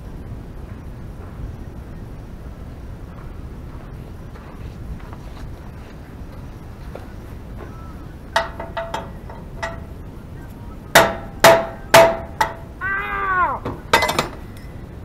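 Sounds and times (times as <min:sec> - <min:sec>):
hammer striking steel: 0:08.4 - 0:09.9, 0:10.9 - 0:12.8.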